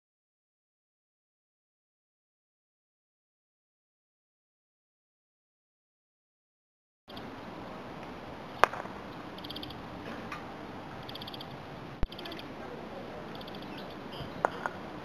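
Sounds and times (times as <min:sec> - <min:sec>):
croquet mallet striking ball: 0:08.6 - 0:09.0, 0:14.4 - 0:14.8
high bird trills: 0:09.1 - 0:09.8, 0:11.0 - 0:12.5, 0:13.3 - 0:14.5.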